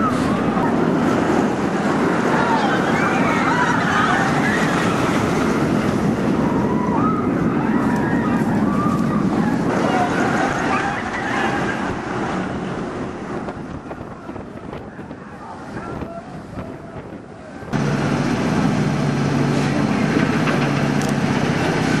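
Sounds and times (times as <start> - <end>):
roller coaster rumbling past: 0.0 - 22.0
wind on microphone: 0.0 - 22.0
low mechanical hum: 16.0 - 22.0.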